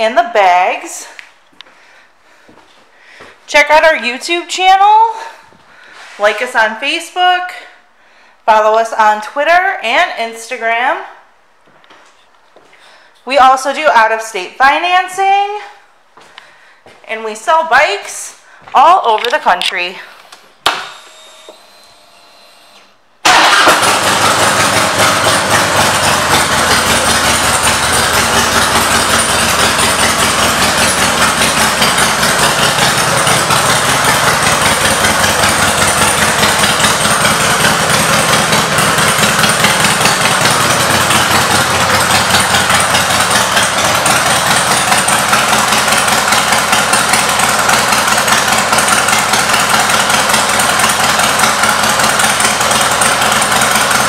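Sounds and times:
motorcycle engine starting and idling: 0:20.6 - 0:54.0.

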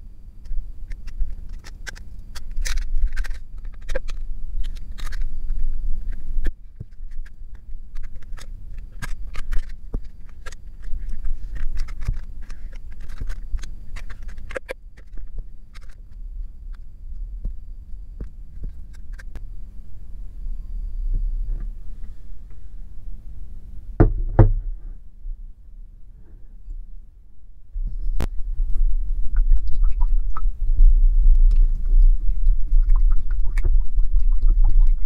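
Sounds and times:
steady low hum: 0:00.0 - 0:35.0
plastic packaging clicking and crackling: 0:00.9 - 0:06.2, 0:06.8 - 0:16.0.

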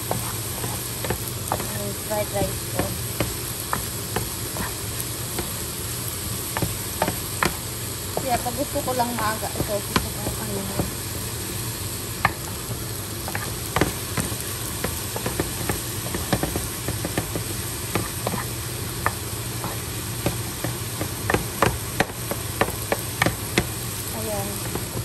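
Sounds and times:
wooden spoon scraping frying pan: 0:00.0 - 0:01.8
rice sizzling: 0:00.0 - 0:25.0
steady low hum: 0:00.0 - 0:25.0.

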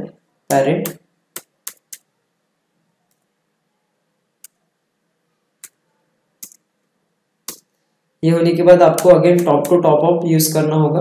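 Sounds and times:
computer keyboard keystrokes: 0:06.4 - 0:06.6.

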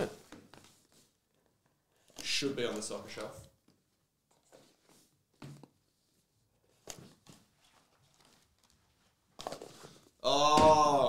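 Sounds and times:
cards rustling and tapping: 0:00.2 - 0:05.8, 0:06.6 - 0:10.1.

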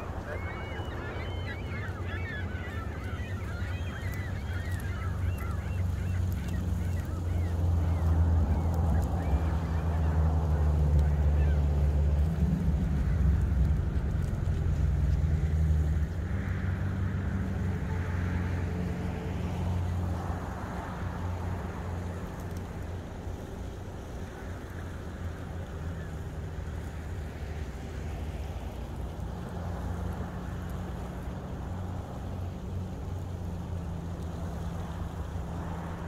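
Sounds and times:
steady low rumble: 0:00.0 - 0:17.6.

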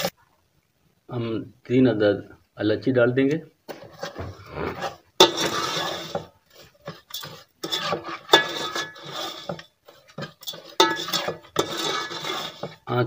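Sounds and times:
metal spoon scraping steel pot: 0:03.7 - 0:12.9.

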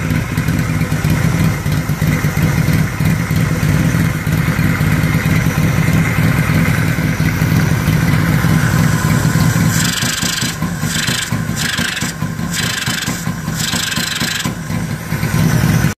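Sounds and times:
motorcycle engine idling: 0:00.0 - 0:16.0
rasping noise: 0:09.7 - 0:14.6.

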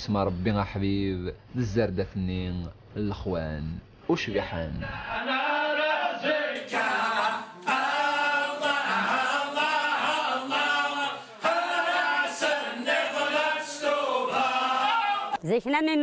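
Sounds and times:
men chanting in unison: 0:04.8 - 0:15.4.

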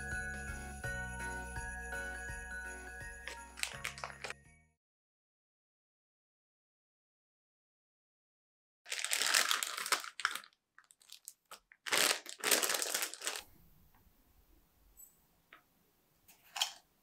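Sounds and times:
plastic packaging crinkling: 0:03.3 - 0:04.4, 0:08.9 - 0:13.5.

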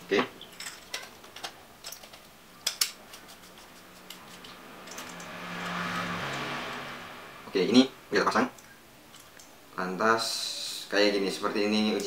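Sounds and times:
metal flashlight parts clicking: 0:00.6 - 0:05.3.

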